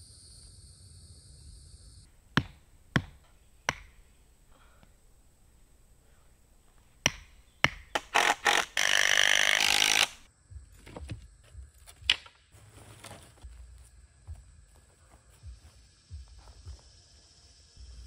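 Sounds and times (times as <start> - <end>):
hammer knocking stakes: 2.3 - 4.1, 7.0 - 10.2.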